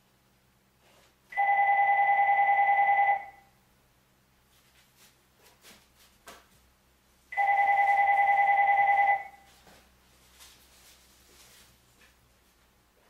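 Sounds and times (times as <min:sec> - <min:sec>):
telephone ringing: 0:01.3 - 0:03.5, 0:07.3 - 0:09.5.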